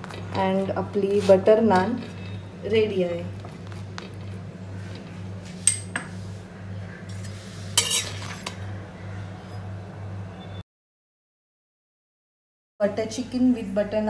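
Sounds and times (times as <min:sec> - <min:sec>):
steady low hum: 0:00.0 - 0:10.4
spatula scraping metal griddle: 0:07.1 - 0:08.6.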